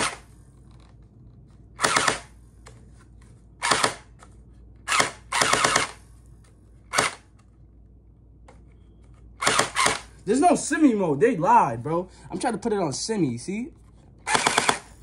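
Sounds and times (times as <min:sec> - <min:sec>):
toy blaster gearbox whirring: 0:14.2 - 0:14.9.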